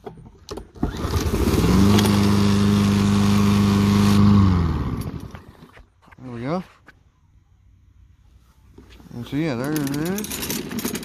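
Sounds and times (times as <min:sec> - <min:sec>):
lawnmower engine running: 0:00.8 - 0:05.7.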